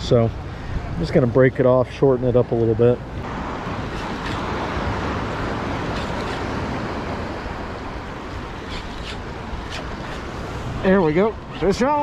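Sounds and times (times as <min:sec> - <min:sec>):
surf washing: 0:00.0 - 0:12.0.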